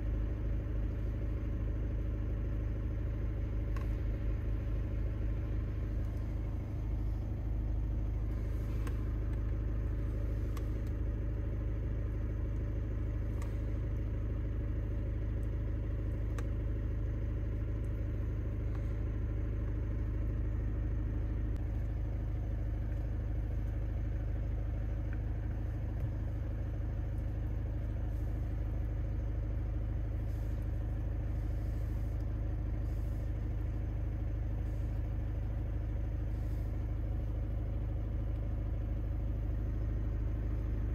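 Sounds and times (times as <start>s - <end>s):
car engine idling: 0.0s - 40.9s.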